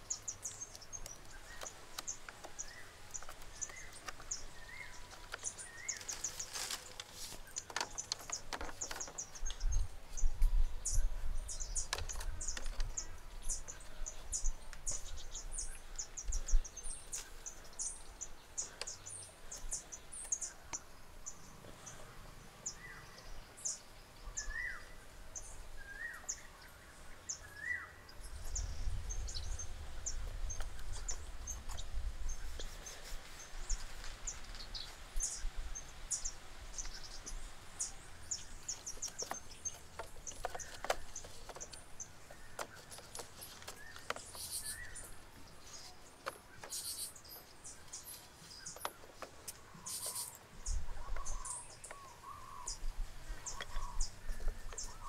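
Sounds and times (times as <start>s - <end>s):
birds chirping: 0.0s - 55.0s
clicks of stakes and wire: 0.2s - 9.6s, 38.3s - 50.5s
rising-and-falling bird calls: 46.5s - 55.0s.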